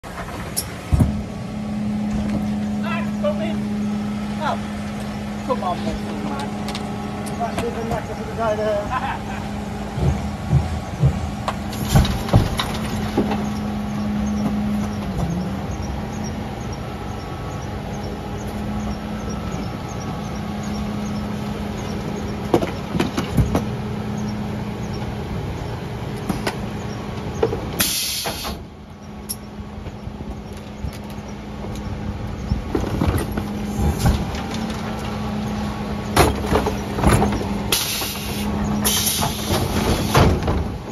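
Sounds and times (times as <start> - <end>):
refuse truck running: 0.0 - 40.9
compactor knocks and clanks: 9.9 - 15.5, 21.8 - 23.8, 32.4 - 40.9.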